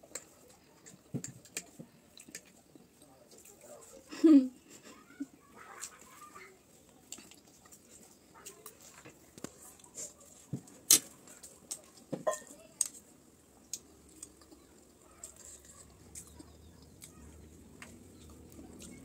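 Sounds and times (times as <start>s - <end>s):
cutlery clinking on ceramic plate: 12.2s - 12.5s.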